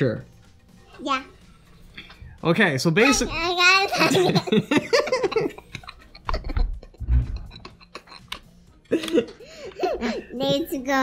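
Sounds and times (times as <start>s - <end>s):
person laughing: 3.9s - 10.3s.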